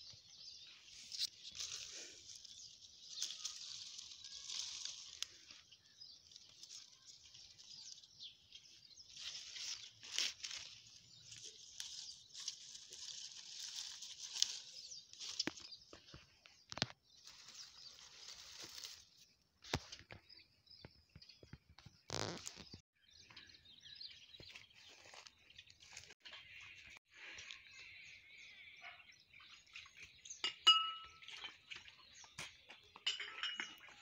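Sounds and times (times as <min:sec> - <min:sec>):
birds chirping: 0:00.0 - 0:34.0
clicks and rustling leaves: 0:00.1 - 0:20.3, 0:21.4 - 0:22.8, 0:24.4 - 0:27.8.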